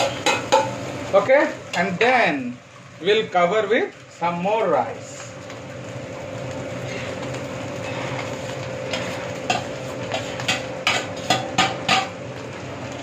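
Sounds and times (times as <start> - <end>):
kitchen hum: 0.0 - 13.0
metal spatula scraping frying pan: 7.8 - 12.1.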